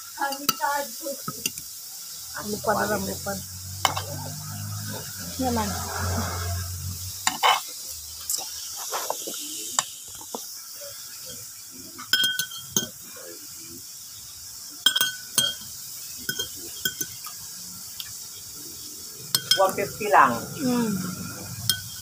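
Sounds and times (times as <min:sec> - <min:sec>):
cutlery clinking on a plate: 0:03.9 - 0:04.2, 0:07.3 - 0:07.7, 0:12.0 - 0:13.0, 0:14.8 - 0:17.3, 0:19.3 - 0:19.7, 0:21.7 - 0:22.0.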